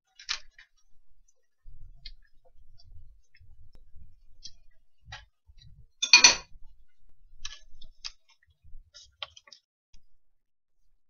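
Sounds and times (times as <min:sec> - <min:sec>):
metal utensil clinking on steel pot: 0:06.0 - 0:06.5.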